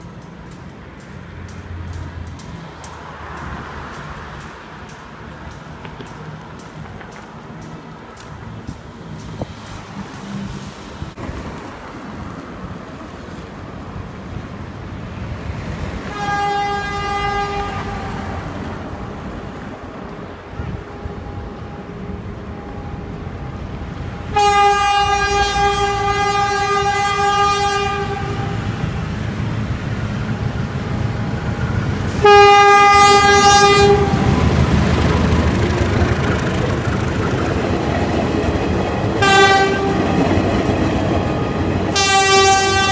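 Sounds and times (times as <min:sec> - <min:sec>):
train rumble and rail clatter: 0:00.0 - 0:42.9
locomotive horn blasts: 0:16.1 - 0:18.5, 0:24.3 - 0:28.8, 0:32.1 - 0:34.5, 0:39.2 - 0:40.2, 0:41.9 - 0:42.9.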